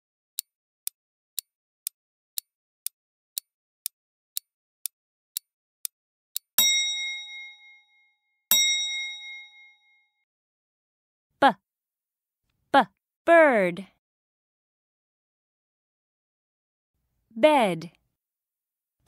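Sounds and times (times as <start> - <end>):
timer ticking: 0.4 - 7.2
bell-like dings: 6.6 - 10.1.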